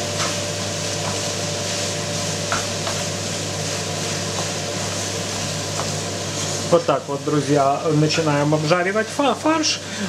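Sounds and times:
meat and onions sizzling in a pan: 0.0s - 9.8s
wooden spatula tapping and scraping pan: 0.1s - 1.4s, 2.0s - 3.2s, 4.0s - 6.6s.

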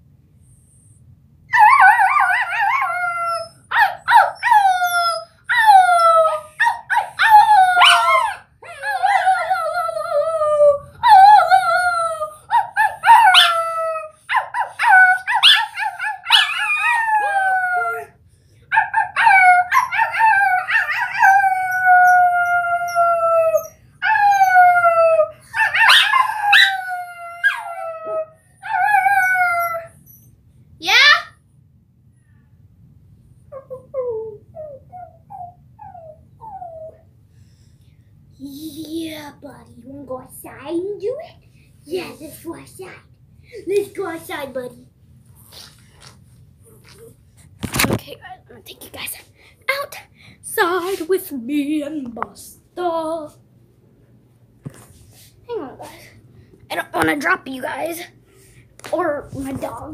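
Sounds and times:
small dog howling: 5.5s - 18.1s
girl howling: 16.4s - 18.2s.

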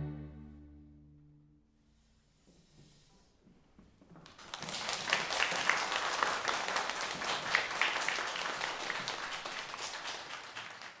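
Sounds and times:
audience applauding: 4.3s - 11.0s.

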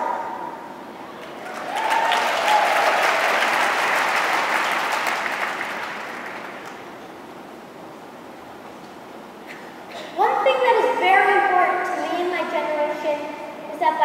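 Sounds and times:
large audience applauding: 1.2s - 6.9s.

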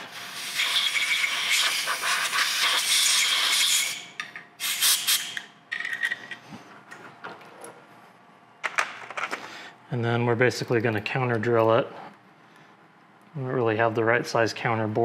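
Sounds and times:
compressed air blow gun hissing: 0.0s - 4.0s, 4.6s - 5.4s.

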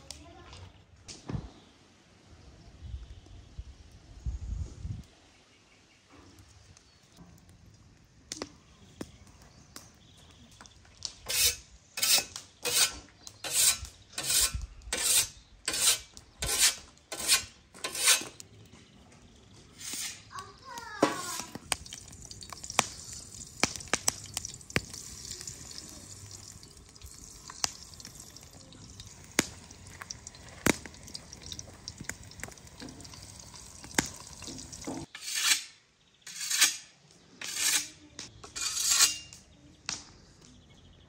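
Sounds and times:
scythe scraping strokes: 11.2s - 18.4s, 19.7s - 20.3s, 35.1s - 39.4s
utensils clicking on pan: 11.2s - 18.4s
food sizzling in hot oil: 19.8s - 35.1s.

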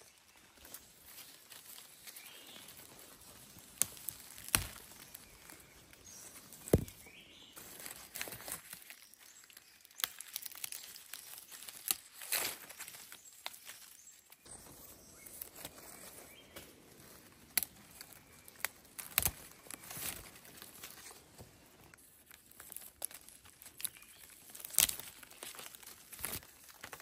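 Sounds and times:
dry leaves and brush rustling: 0.0s - 27.0s
sharp snaps of twigs: 3.4s - 6.0s, 6.6s - 14.4s, 16.4s - 27.0s.

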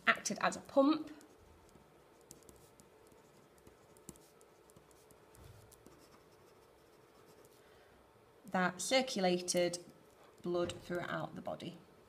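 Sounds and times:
ballpoint pen scratching on paper: 1.2s - 7.6s.

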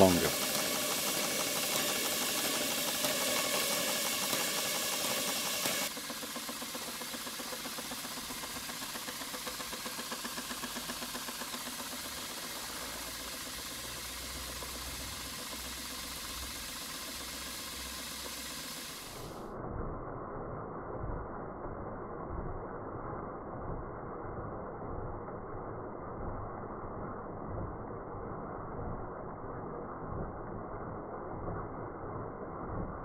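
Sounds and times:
steam engine exhaust beating: 0.0s - 19.4s
steam hissing: 0.0s - 19.5s.

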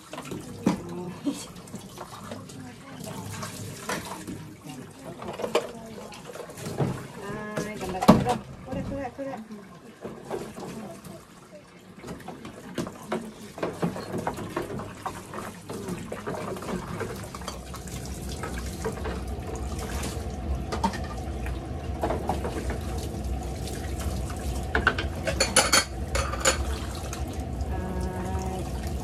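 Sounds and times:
tap water running into sink: 0.0s - 29.0s
dishes scrubbed: 23.8s - 27.3s.

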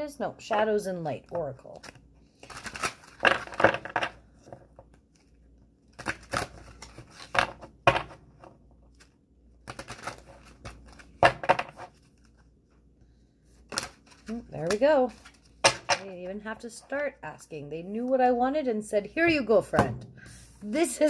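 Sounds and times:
cards being shuffled: 1.6s - 8.2s, 8.9s - 12.5s.

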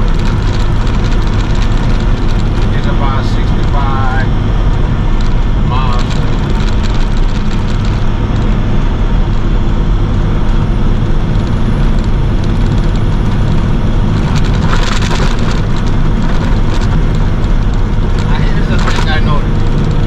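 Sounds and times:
truck engine and road noise: 0.0s - 20.0s.

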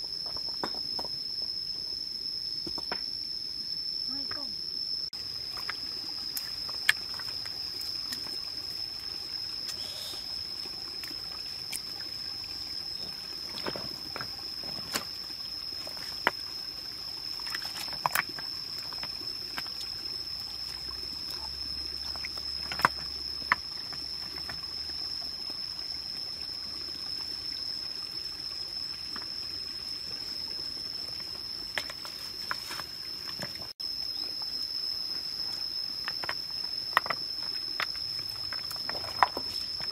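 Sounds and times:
high insect drone: 0.0s - 39.9s
stream trickling: 5.2s - 39.9s
stones knocking in water: 22.1s - 24.6s, 36.1s - 39.9s.

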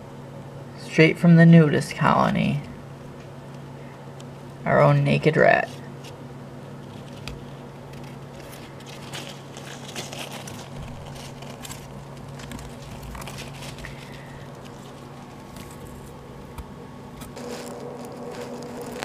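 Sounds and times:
steady low hum: 0.0s - 19.0s
rat scrabbling in bedding: 5.7s - 19.0s.

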